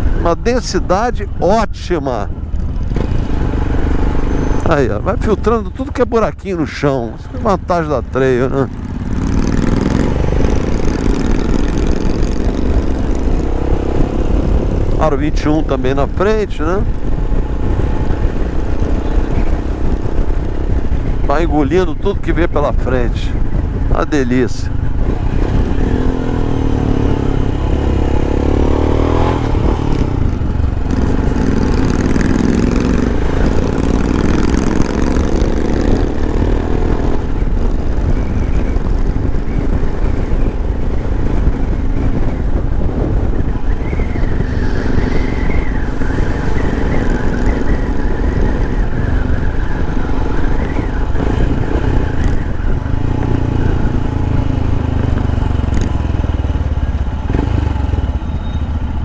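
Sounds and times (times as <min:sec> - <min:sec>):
motorcycle engine running: 0:07.1 - 0:22.1, 0:23.3 - 0:59.0.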